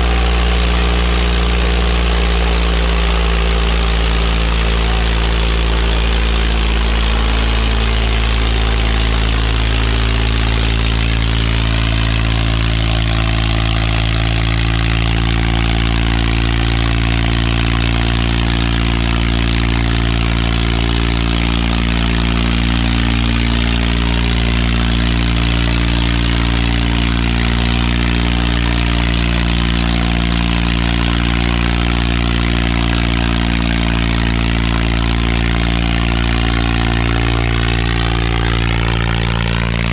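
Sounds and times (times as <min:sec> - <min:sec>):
tractor diesel engine labouring: 0:00.0 - 0:39.9.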